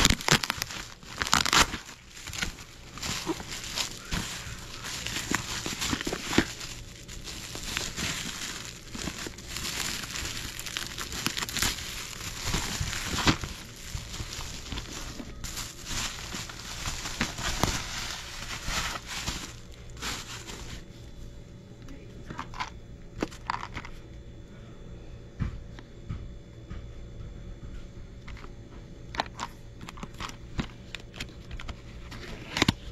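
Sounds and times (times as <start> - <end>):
bubble wrap crinkling: 0.0 - 21.0.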